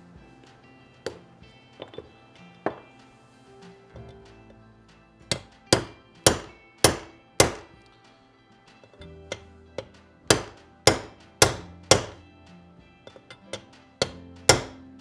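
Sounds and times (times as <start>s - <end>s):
hammer striking metal: 5.2s - 7.8s, 8.8s - 12.2s, 13.1s - 14.8s.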